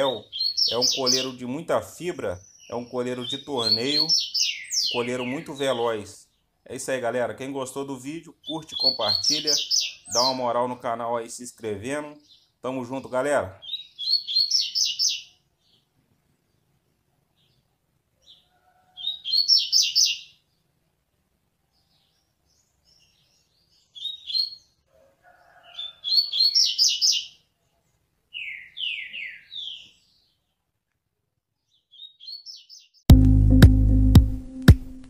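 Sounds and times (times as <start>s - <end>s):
bird singing rapid high notes: 0.0s - 1.6s, 2.2s - 6.8s, 8.3s - 10.7s, 12.1s - 15.3s.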